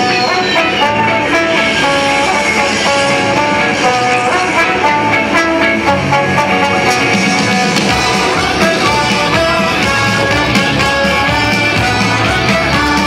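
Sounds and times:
rock music with guitar: 0.0s - 13.0s.

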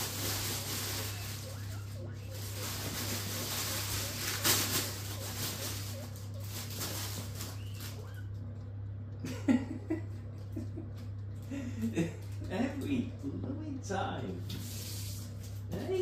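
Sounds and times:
guinea pigs shuffling in hay: 0.0s - 8.3s, 12.6s - 16.0s
steady low hum: 0.0s - 16.0s
guinea pig calls: 0.8s - 8.7s.

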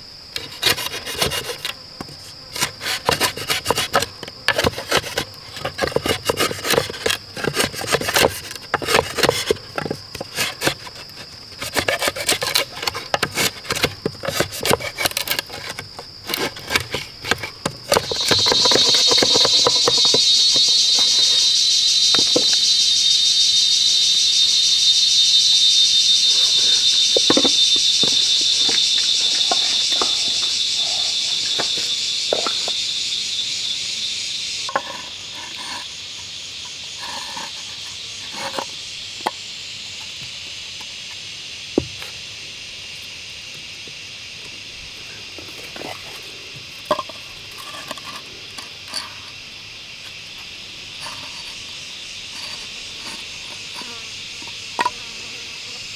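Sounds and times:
high insect buzz: 0.0s - 55.9s
high-pitched insect drone: 0.0s - 55.9s
scraping and rubbing strokes: 10.2s - 21.5s, 52.3s - 53.9s.

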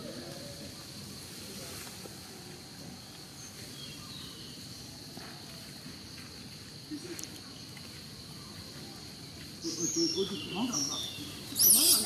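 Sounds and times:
high insect drone: 0.0s - 12.0s
faint chirps: 6.9s - 12.0s.

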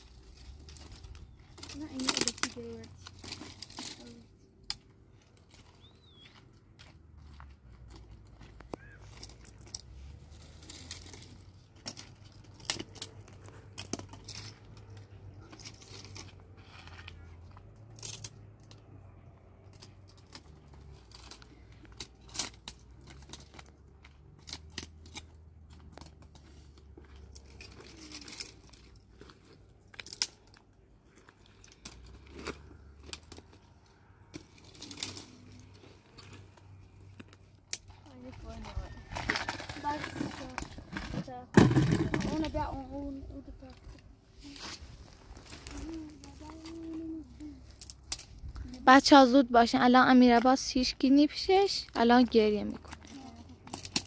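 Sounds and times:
twigs crackling and snapping: 0.0s - 41.2s, 42.3s - 51.0s, 51.7s - 54.0s.

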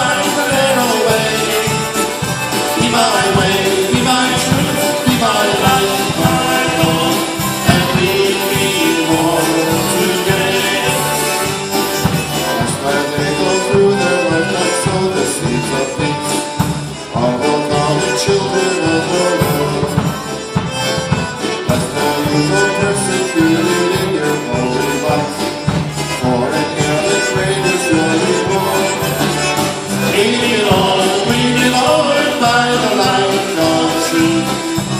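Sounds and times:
accordion: 0.0s - 34.9s
polka band playing: 0.0s - 34.9s.

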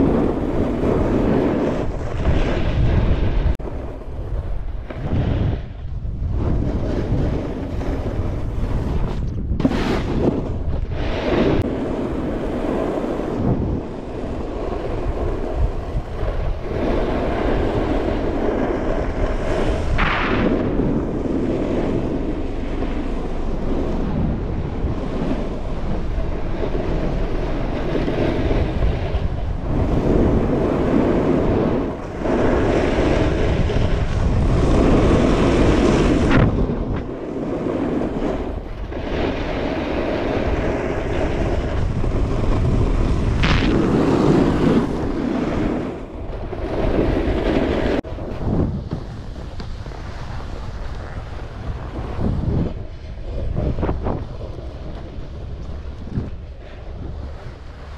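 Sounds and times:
snowboard scraping over snow: 0.0s - 57.9s
wind rushing over microphone: 0.0s - 57.9s.

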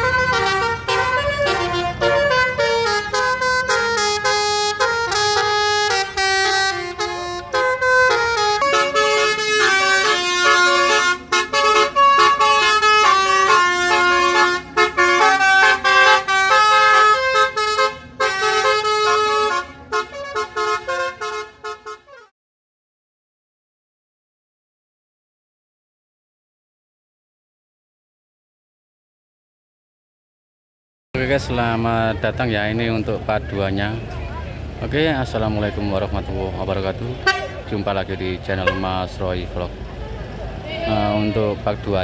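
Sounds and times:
musical air horn melody: 0.0s - 22.3s, 37.2s - 37.6s.

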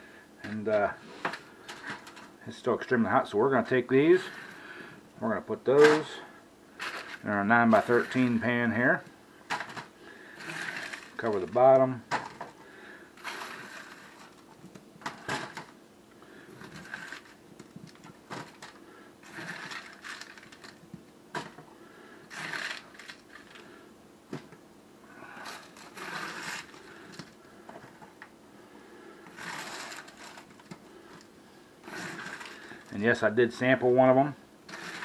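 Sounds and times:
potatoes clattering: 22.3s - 23.6s, 29.3s - 31.2s.

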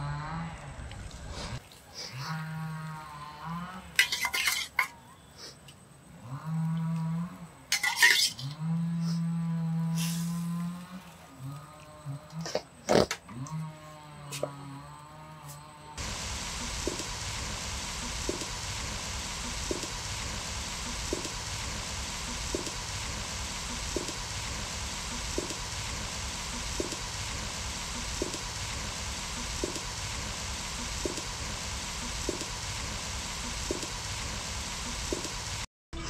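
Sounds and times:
curry boiling bubbling hiss: 1.2s - 13.2s, 16.0s - 35.7s
faint ticking: 16.0s - 35.7s.

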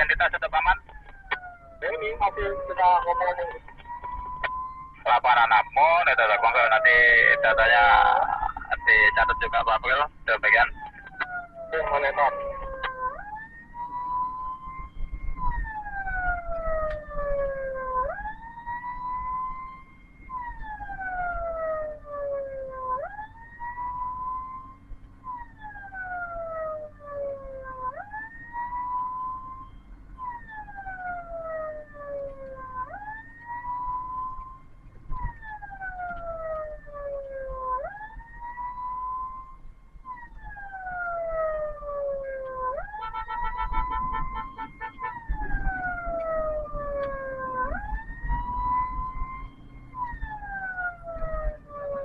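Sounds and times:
steady low hum: 0.0s - 22.2s
ambulance siren wailing: 0.0s - 52.0s.

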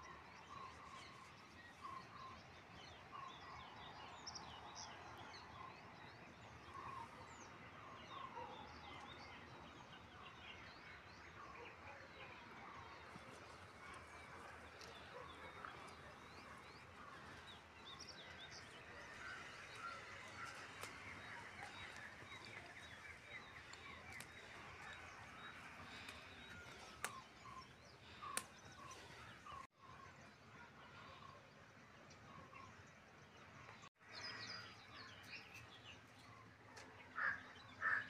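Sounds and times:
small birds chirping: 12.9s - 31.3s.

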